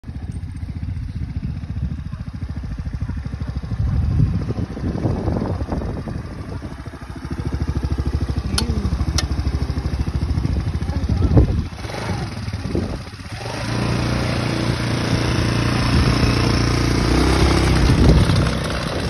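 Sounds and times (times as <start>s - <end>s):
small engine running: 0.0s - 19.0s
sharp clicks: 8.5s - 9.5s.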